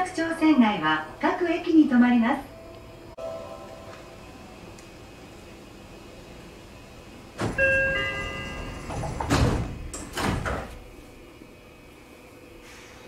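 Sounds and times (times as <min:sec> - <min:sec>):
sliding train doors thudding shut: 0:07.3 - 0:11.0
electronic door chime: 0:07.6 - 0:09.2.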